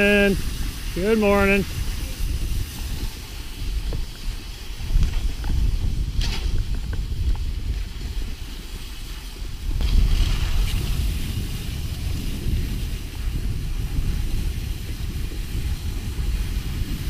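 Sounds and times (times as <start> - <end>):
skis hissing over snow: 0.0 - 17.0
wind rumbling over microphone: 0.0 - 17.0.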